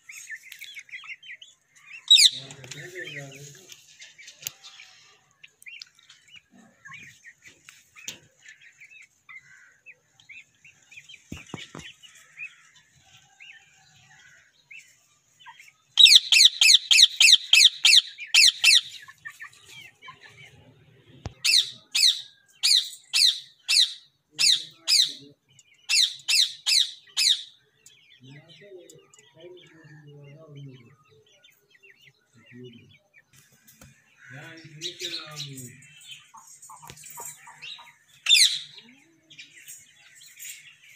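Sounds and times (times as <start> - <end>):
parakeet calling: 1.8 - 2.5, 16.0 - 19.0, 21.4 - 25.2, 25.9 - 27.6, 37.3 - 38.8.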